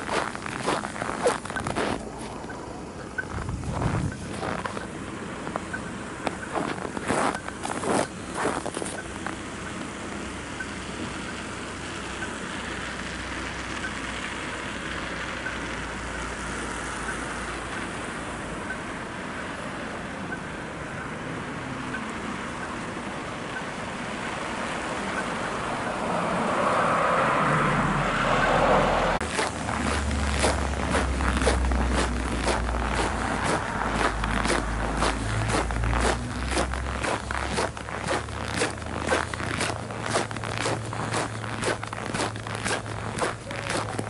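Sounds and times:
car driving past: 0:25.6 - 0:43.3.

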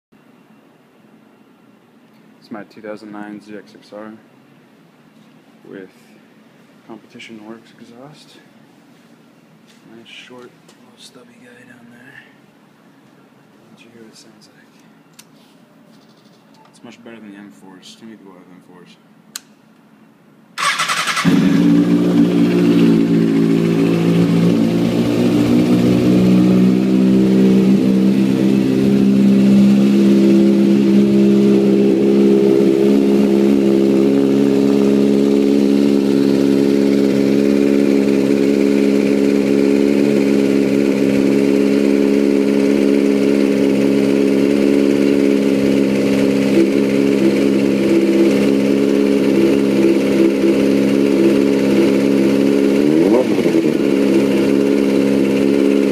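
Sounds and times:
motorcycle engine idling: 0:20.6 - 0:55.9.

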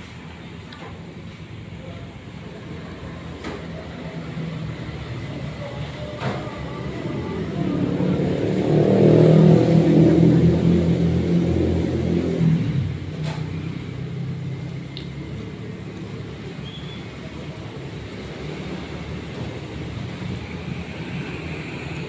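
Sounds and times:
vehicle engine running: 0:00.0 - 0:16.6
low traffic hum: 0:00.0 - 0:22.0.

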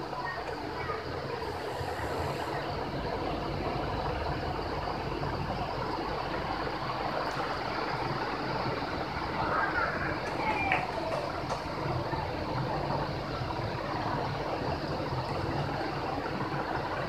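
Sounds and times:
even hiss: 0:01.3 - 0:02.9.

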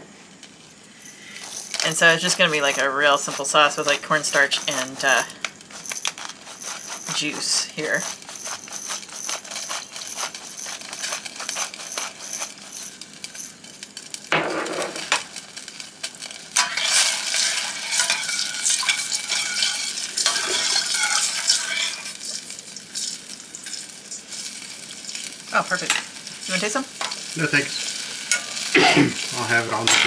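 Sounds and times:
sauce simmering: 0:00.3 - 0:14.4, 0:15.0 - 0:29.8
metal spoon scraping saucepan: 0:01.1 - 0:13.6, 0:16.6 - 0:22.3, 0:29.7 - 0:30.0.

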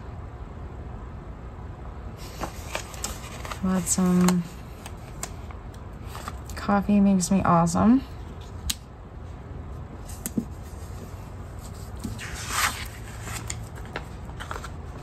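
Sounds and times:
paper rustle: 0:02.2 - 0:06.6, 0:10.0 - 0:15.0.

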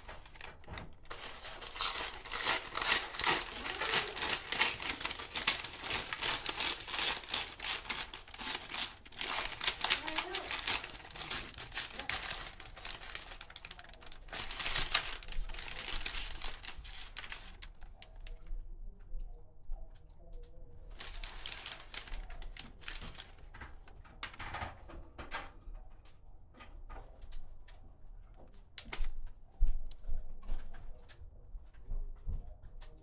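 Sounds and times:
paper wrapper crinkling: 0:00.0 - 0:18.5, 0:20.9 - 0:24.4.

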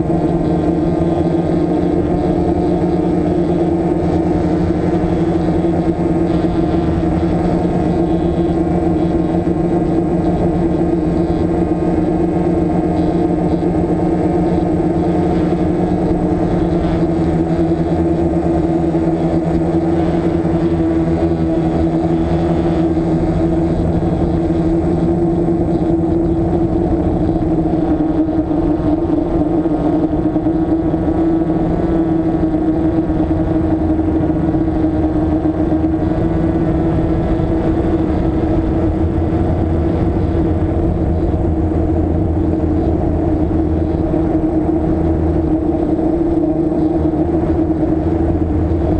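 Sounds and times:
drone motors whirring: 0:00.0 - 0:48.9.

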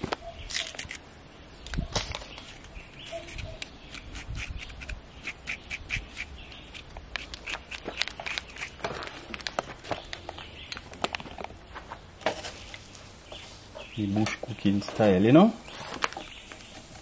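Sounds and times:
knife scraping banana skin: 0:02.3 - 0:08.9.

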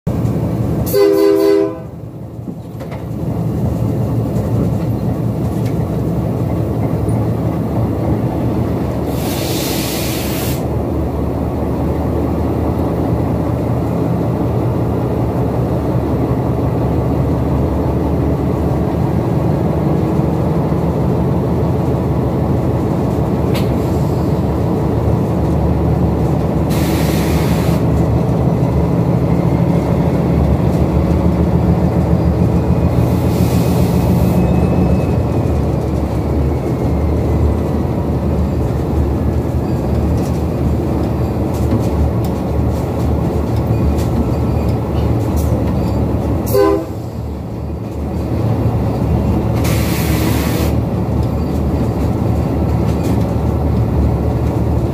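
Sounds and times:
short bursts of hiss: 0:09.1 - 0:10.7, 0:26.7 - 0:27.8, 0:49.6 - 0:50.8.

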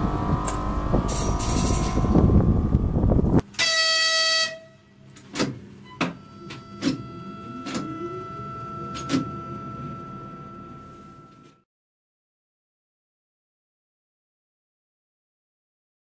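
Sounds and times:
electric locomotive rushing: 0:00.0 - 0:03.4
locomotive horn blast: 0:03.5 - 0:05.1
steady high tone: 0:06.2 - 0:11.6.

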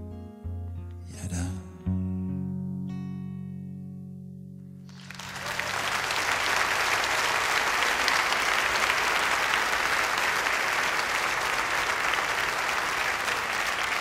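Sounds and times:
audience applauding: 0:04.9 - 0:14.0.

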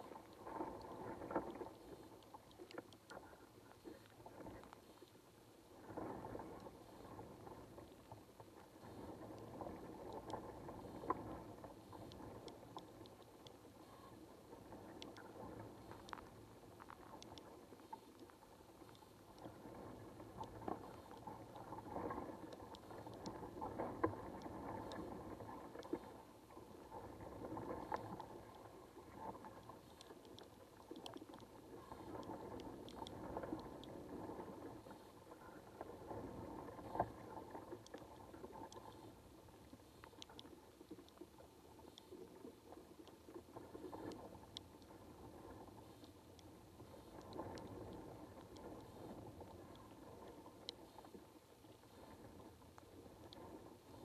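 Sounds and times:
muffled underwater water wash: 0:00.0 - 0:54.0
tiny ticks: 0:00.0 - 0:54.0.

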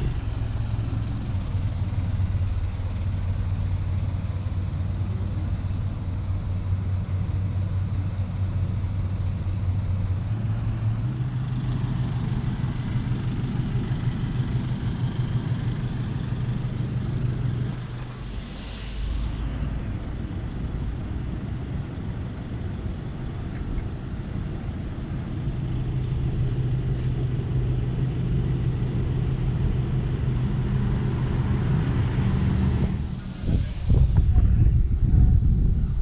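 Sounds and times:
engine running: 0:00.0 - 0:36.0
street noise: 0:00.0 - 0:36.0.

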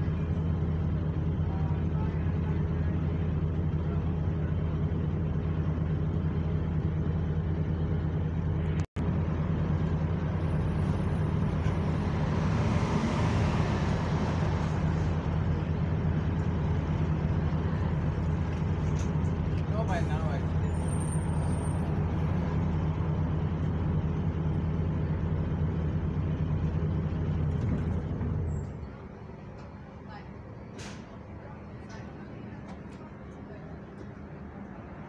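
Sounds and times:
bus diesel engine idling: 0:00.0 - 0:35.0
rushing noise: 0:09.0 - 0:17.0.

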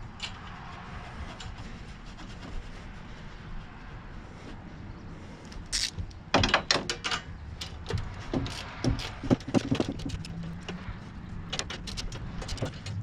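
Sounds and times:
hand ratchet clicking: 0:05.7 - 0:06.0, 0:07.6 - 0:10.7.

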